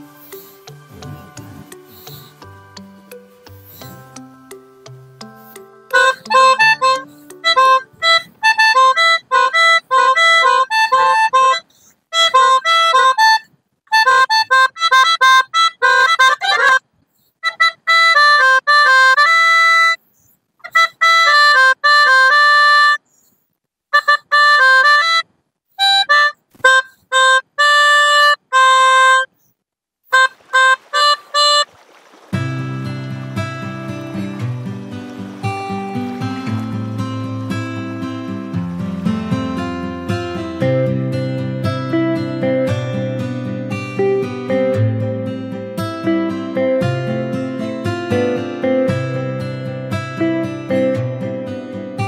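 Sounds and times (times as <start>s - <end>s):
melodica playing a tune: 0.0s - 20.0s, 20.6s - 23.2s, 23.9s - 29.4s, 30.1s - 31.7s, 32.5s - 43.2s.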